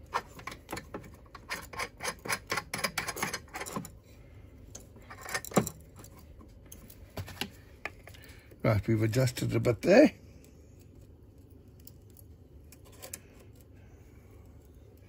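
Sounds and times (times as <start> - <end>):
small metal clicks and rattles: 0.0 - 4.0, 4.7 - 7.0, 10.4 - 15.0.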